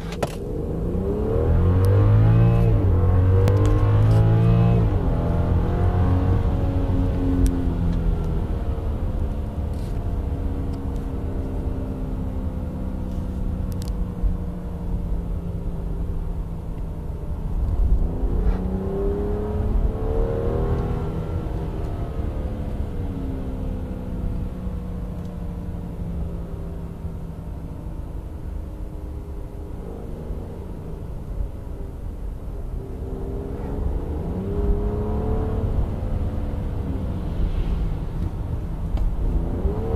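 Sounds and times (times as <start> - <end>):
car engine from inside cabin: 0.0 - 39.9
low road rumble: 0.0 - 39.9.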